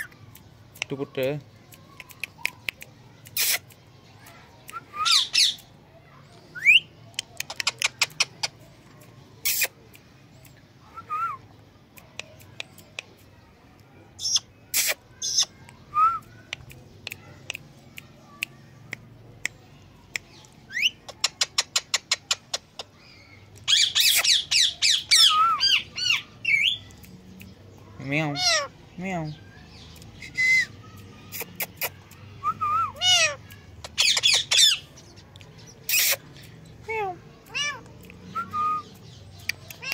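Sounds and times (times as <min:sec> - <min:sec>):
parakeet squawking and chirping: 0:05.0 - 0:05.6, 0:20.7 - 0:26.9, 0:28.2 - 0:28.7, 0:33.0 - 0:36.3.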